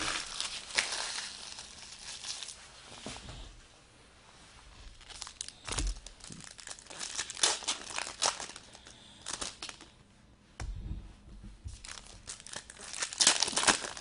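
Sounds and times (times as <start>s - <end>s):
card pack wrapper crinkling: 0.0s - 2.6s, 4.9s - 9.9s, 11.8s - 14.0s.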